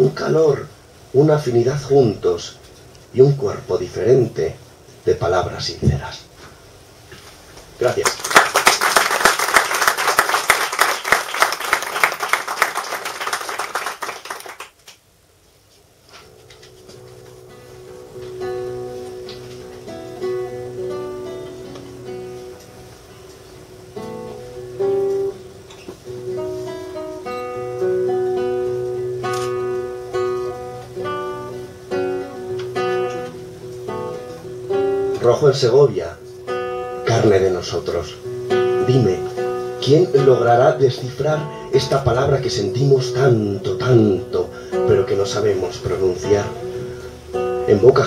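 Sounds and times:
audience clapping: 0:07.9 - 0:15.0
classical guitar chords: 0:16.2 - 0:48.0.

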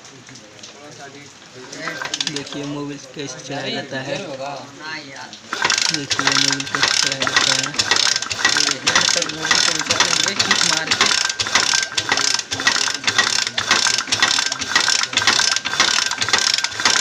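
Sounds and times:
engine mechanical clattering: 0:01.8 - 0:02.7, 0:05.5 - 0:17.0.

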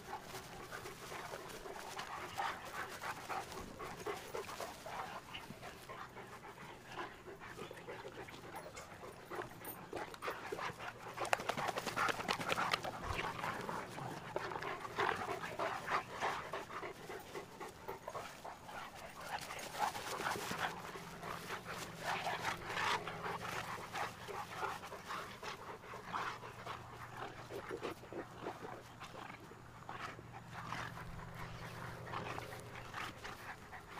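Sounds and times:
dogs panting hard: 0:00.0 - 0:33.9
dogs wrestling: 0:00.0 - 0:33.9.

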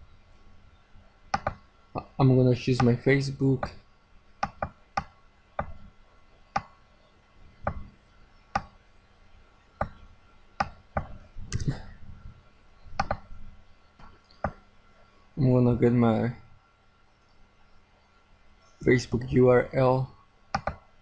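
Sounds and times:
computer mouse button clicking: 0:01.3 - 0:01.6, 0:04.4 - 0:05.7, 0:13.0 - 0:13.2, 0:20.5 - 0:20.8.

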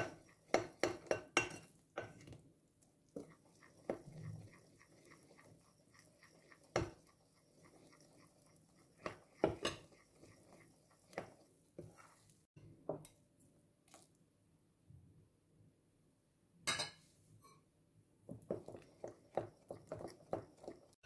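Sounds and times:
spatula tapping glass bowl: 0:00.0 - 0:02.2, 0:06.4 - 0:07.2, 0:09.0 - 0:10.0
metal spoon clinking on bowls: 0:00.0 - 0:02.3.

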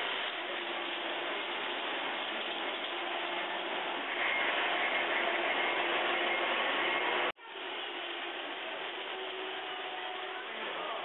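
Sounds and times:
model train rattling on track: 0:00.0 - 0:07.3.

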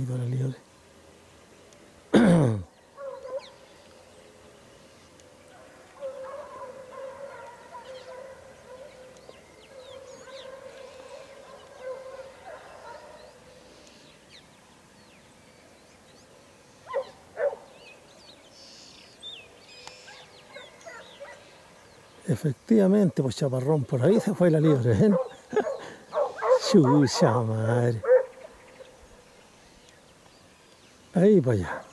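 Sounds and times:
distant dogs baying: 0:02.2 - 0:03.7, 0:05.2 - 0:14.2, 0:16.8 - 0:18.1, 0:19.9 - 0:29.8, 0:31.2 - 0:31.9
dogs yelping: 0:03.0 - 0:03.5, 0:05.9 - 0:13.4, 0:16.9 - 0:17.7, 0:20.0 - 0:21.4, 0:24.1 - 0:28.6.

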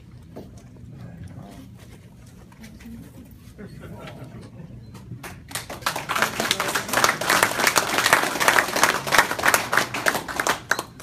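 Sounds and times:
group applauding: 0:05.2 - 0:11.0.

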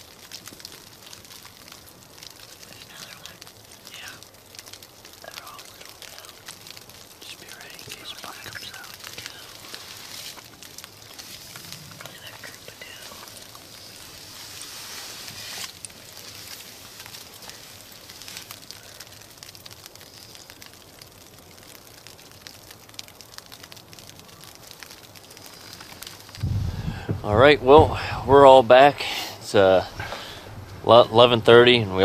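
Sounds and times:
light scattered ticks: 0:00.0 - 0:27.6
faint steady hiss: 0:00.0 - 0:32.0.

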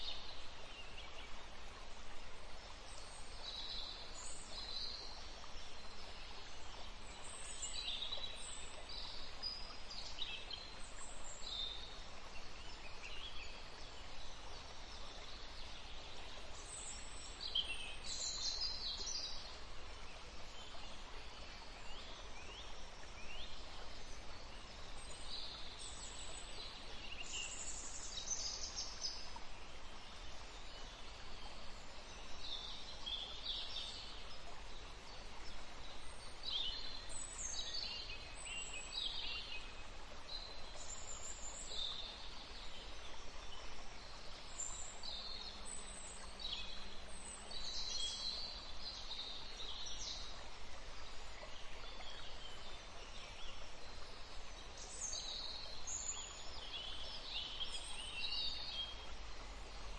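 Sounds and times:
steady background hiss: 0:00.0 - 0:59.9.

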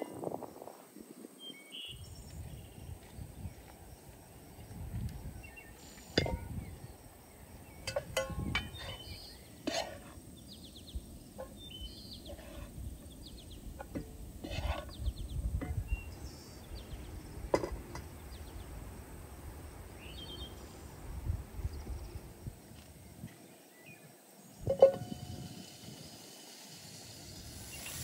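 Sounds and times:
birds chirping: 0:01.4 - 0:19.0, 0:19.7 - 0:21.0, 0:21.6 - 0:28.0
cookware knocking and clinking: 0:06.2 - 0:06.5, 0:07.8 - 0:09.1, 0:24.7 - 0:25.3.

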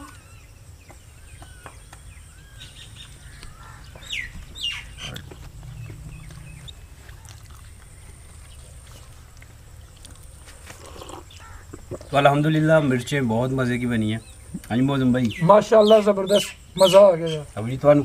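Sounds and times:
birds calling: 0:00.0 - 0:18.0
low steady rumble: 0:02.0 - 0:10.5.

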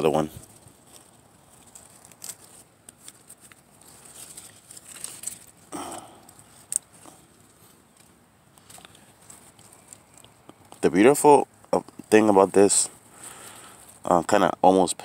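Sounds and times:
lettuce leaves snapping: 0:00.0 - 0:10.8
leaves rustling: 0:00.0 - 0:15.0.

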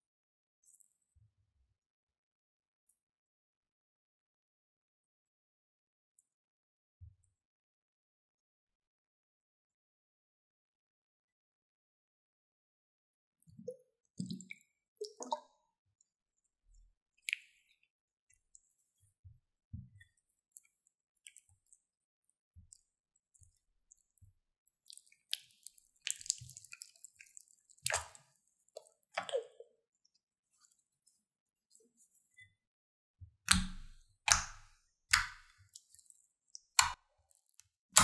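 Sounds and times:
slime squishing and squelching: 0:25.0 - 0:28.2.

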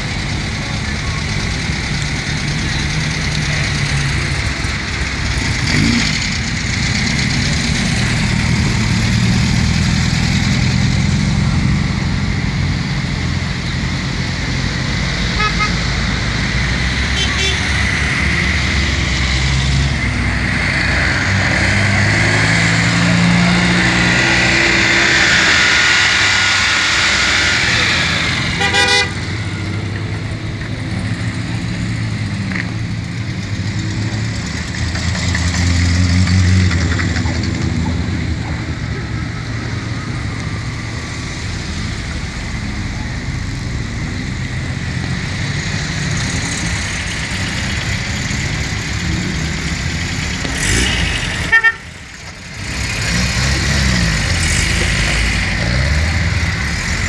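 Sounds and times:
cars driving past: 0:00.0 - 0:57.0
car horn toot: 0:15.4 - 0:15.8, 0:17.1 - 0:17.8, 0:28.6 - 0:29.4, 0:51.4 - 0:51.9.

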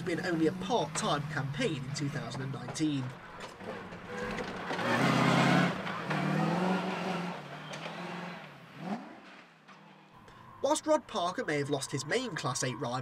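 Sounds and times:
racing car engine revving past: 0:04.7 - 0:09.4.

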